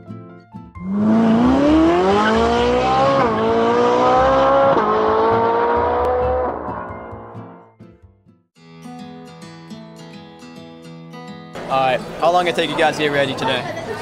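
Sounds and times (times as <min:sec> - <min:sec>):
car engine accelerating: 0:00.8 - 0:07.6.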